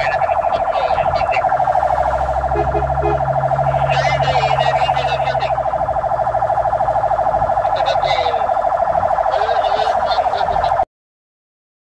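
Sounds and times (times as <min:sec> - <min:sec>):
fire engine siren warbling: 0:00.0 - 0:10.9
engine running: 0:00.2 - 0:09.3.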